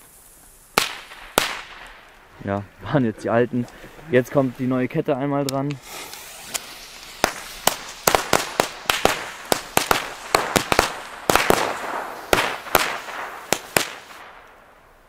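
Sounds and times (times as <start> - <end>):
fuse hiss: 0.0 - 1.3, 5.6 - 10.3.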